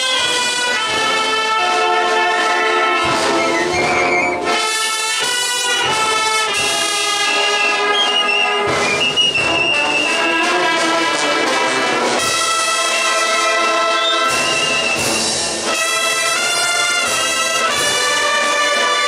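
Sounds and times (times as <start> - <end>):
brass and woodwind band playing march: 0.0 - 19.0.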